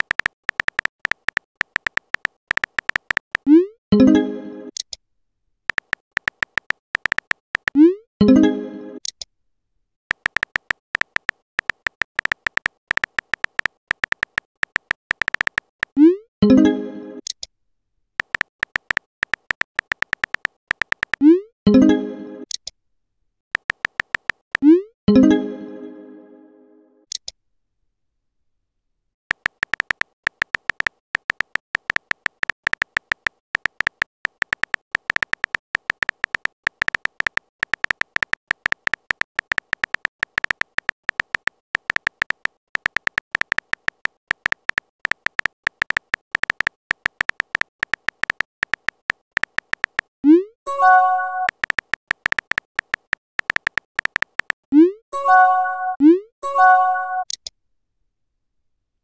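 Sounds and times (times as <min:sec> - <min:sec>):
keyboard typing clicks: 0:00.0 - 0:05.0, 0:05.7 - 0:08.4, 0:10.1 - 0:17.5, 0:18.2 - 0:22.7, 0:23.6 - 0:24.8, 0:29.3 - 0:57.5
message alert tones: 0:07.7 - 0:09.0, 0:15.3 - 0:17.2, 0:21.2 - 0:22.4, 0:50.2 - 0:51.7, 0:54.7 - 0:57.3.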